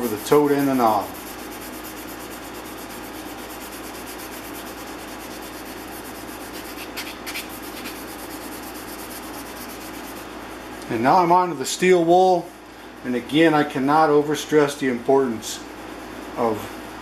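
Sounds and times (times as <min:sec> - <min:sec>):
sanding sponge scuffing wood: 0:00.0 - 0:10.3
sharp scrapes: 0:00.0 - 0:10.3.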